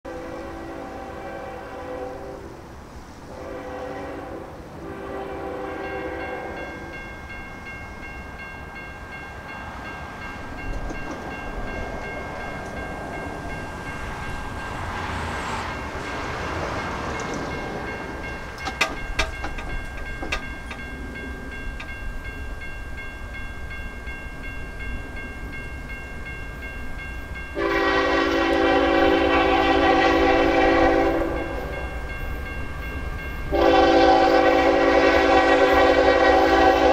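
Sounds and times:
train air horn blasts: 0.1s - 2.7s, 3.3s - 6.9s, 27.6s - 31.8s, 33.5s - 36.9s
train rumbling: 0.1s - 36.9s
steady high ringing tone: 5.8s - 14.9s, 16.8s - 34.0s.

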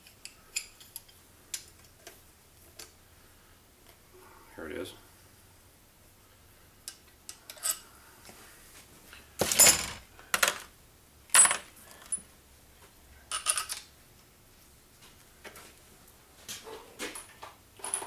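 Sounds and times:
metal parts and tools clinking: 0.0s - 2.9s, 6.9s - 7.8s, 9.4s - 10.7s, 11.3s - 12.2s, 13.3s - 13.9s, 17.2s - 18.0s.

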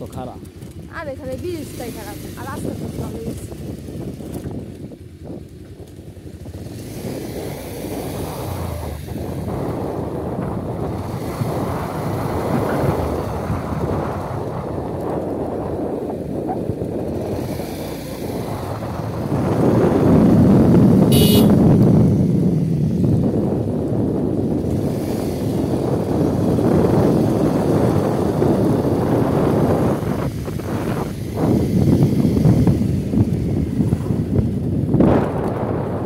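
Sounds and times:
vehicle rumble: 0.0s - 36.0s
short high-pitched toot: 21.1s - 21.6s.

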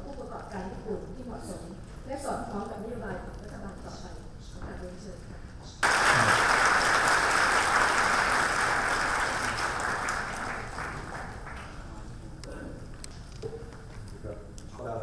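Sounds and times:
large audience applauding: 5.8s - 11.9s.

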